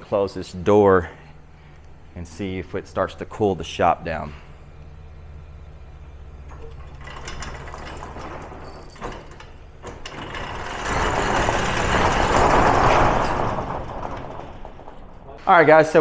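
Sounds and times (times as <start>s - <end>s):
roll-up steel door rattling: 5.8s - 16.0s.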